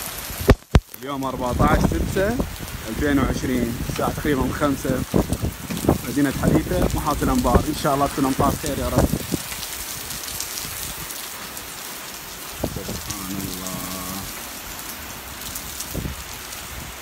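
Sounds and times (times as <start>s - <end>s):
heavy rain on paving: 0.0s - 17.0s.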